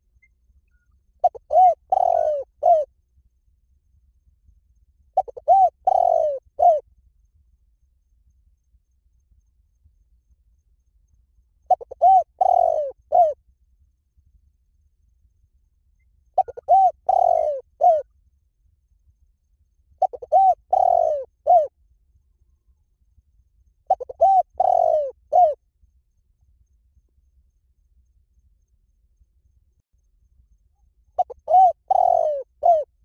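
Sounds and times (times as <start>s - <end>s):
dove cooing: 1.2s - 2.9s, 5.2s - 6.8s, 11.7s - 13.4s, 16.4s - 18.1s, 20.0s - 21.7s, 23.9s - 25.6s, 31.2s - 32.9s.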